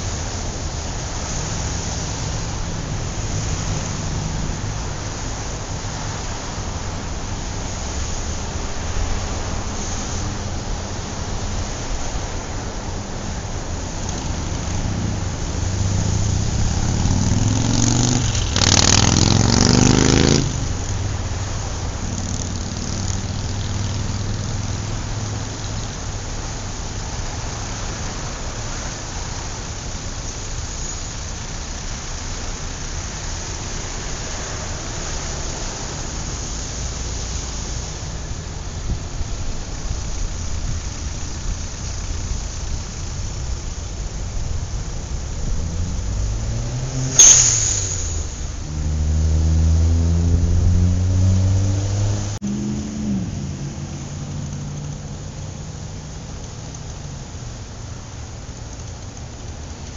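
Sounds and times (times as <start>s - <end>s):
road noise: 0.0s - 59.9s
vehicle engine revving past: 14.1s - 25.4s, 45.2s - 54.4s.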